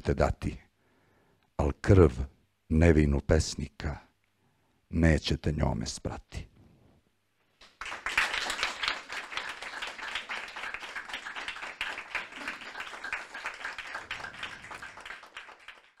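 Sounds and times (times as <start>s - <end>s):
audience applauding: 7.6s - 16.0s.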